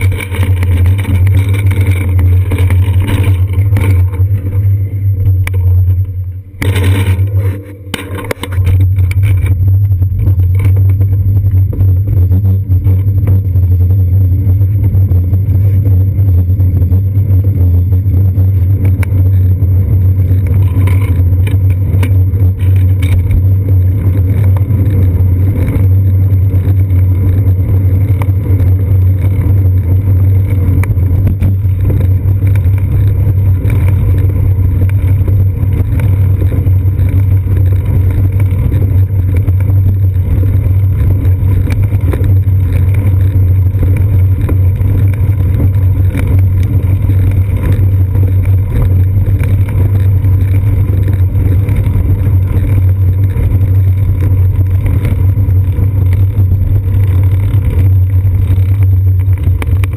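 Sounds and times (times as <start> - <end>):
road vibration rumble: 0.0 - 59.9
wind rumble: 0.0 - 59.9.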